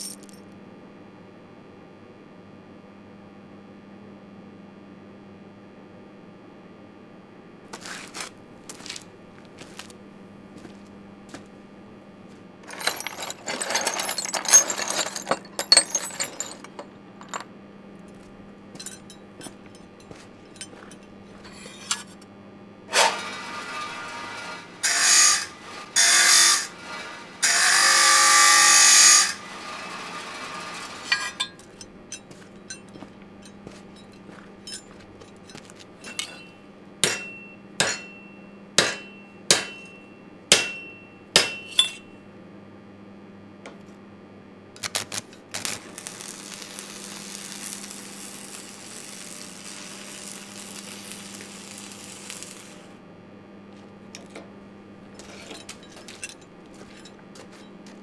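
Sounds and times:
metal tools clinking and scraping: 0.0s - 0.4s, 12.6s - 17.5s, 18.1s - 22.2s, 30.8s - 42.1s, 54.2s - 58.0s
low steady hum: 8.4s - 22.9s.

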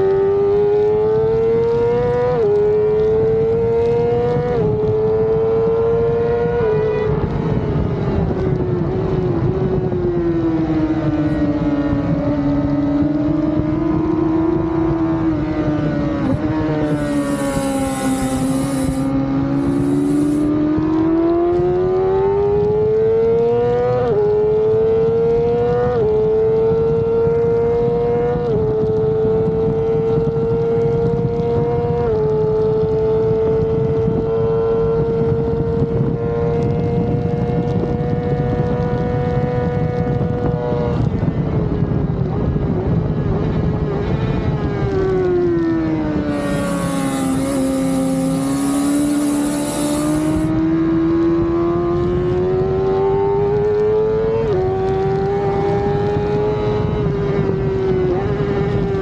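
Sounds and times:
rush of wind: 1.0s - 23.1s, 34.9s - 50.6s
motorcycle engine revving: 16.2s - 20.5s, 46.3s - 50.5s.

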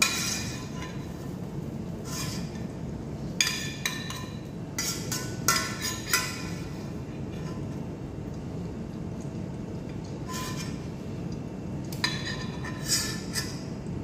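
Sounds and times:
low background noise: 0.0s - 14.0s
utensil clinking on pan: 3.4s - 6.7s.

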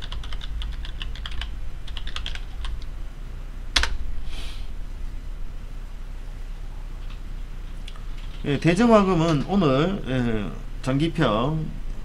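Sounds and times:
keyboard typing: 0.0s - 2.9s.

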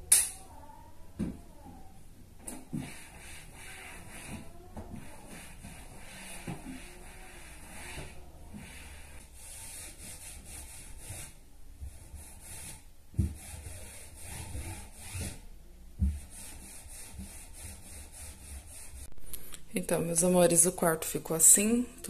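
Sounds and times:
cloth wiping wood: 2.7s - 11.4s.

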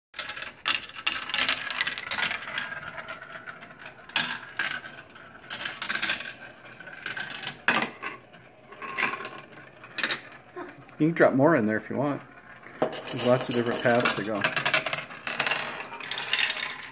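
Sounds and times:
marbles rolling whir: 0.2s - 16.9s
marbles clacking: 12.7s - 16.9s.

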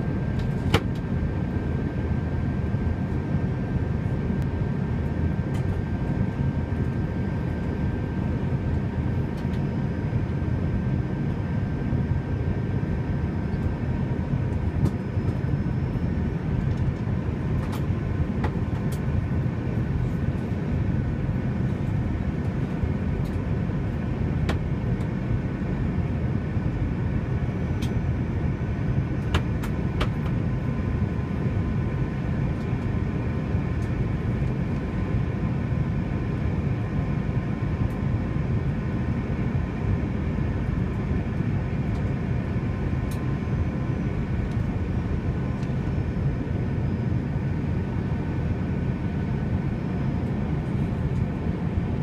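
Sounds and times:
jet engine and airflow rumble: 0.0s - 52.0s.

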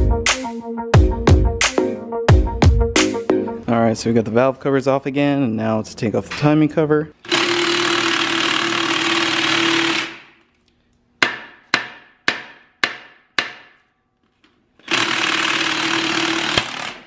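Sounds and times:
impact wrench hammering bolts: 14.5s - 17.0s.

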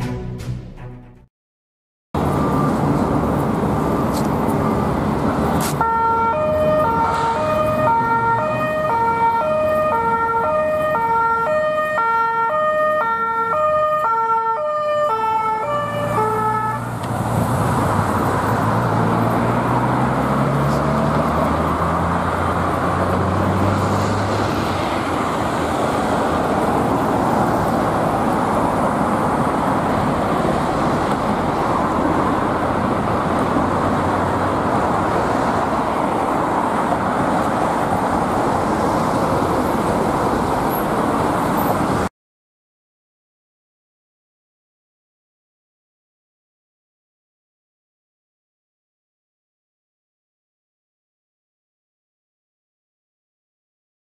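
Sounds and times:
police two-tone siren: 2.2s - 17.0s
traffic noise: 2.2s - 42.1s
cars accelerating past: 15.8s - 42.1s.

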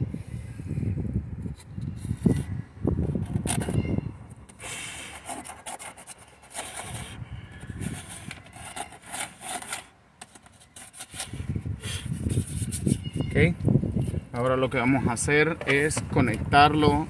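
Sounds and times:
hard plastic scraping: 1.5s - 3.8s, 4.4s - 13.1s.

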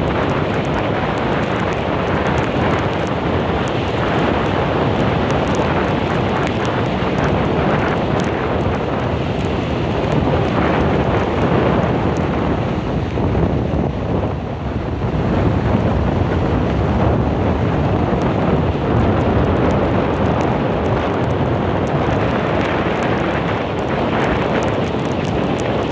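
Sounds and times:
storm wind buffeting microphone: 0.0s - 25.9s.

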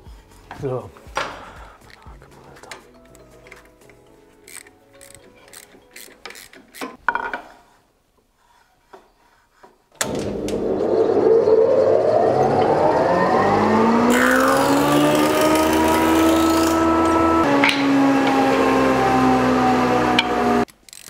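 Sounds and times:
planer motor whine: 10.0s - 20.7s.

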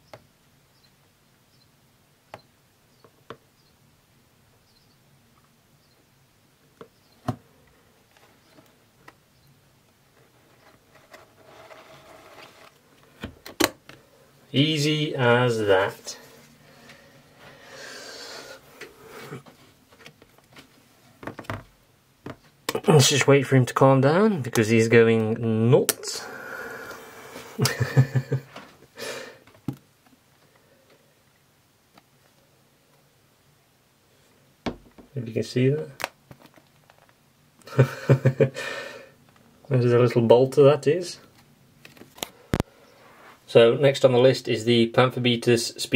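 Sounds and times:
breath: 16.3s - 19.4s, 26.2s - 27.6s, 29.0s - 29.5s, 38.6s - 39.2s
breathy vocal chuckle: 27.4s - 28.6s, 37.7s - 38.8s.

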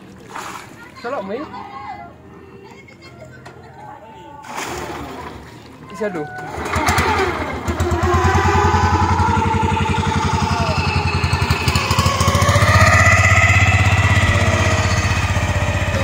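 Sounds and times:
small boat engine puttering: 4.5s - 16.0s.

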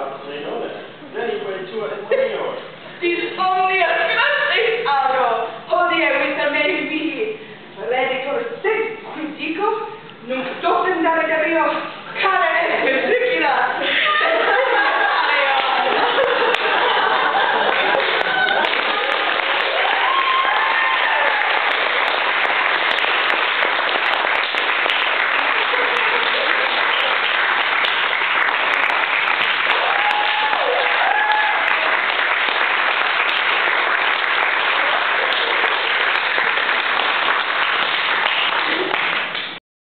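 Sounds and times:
people cheering: 14.0s - 39.2s
audience applauding: 14.2s - 39.6s.

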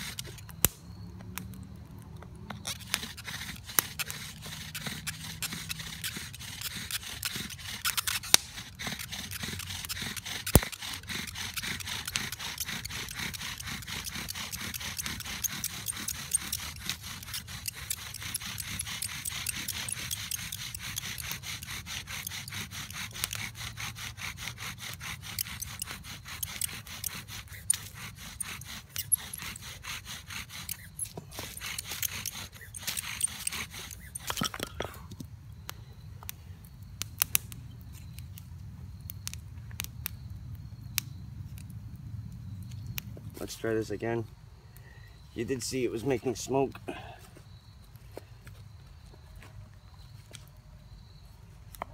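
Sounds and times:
bow drill rasping friction: 0.0s - 0.6s, 2.5s - 35.3s.

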